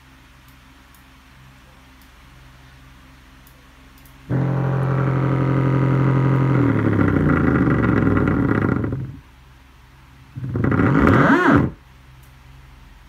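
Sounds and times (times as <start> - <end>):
loud low speaker hum: 4.3 - 9.4, 10.3 - 11.8.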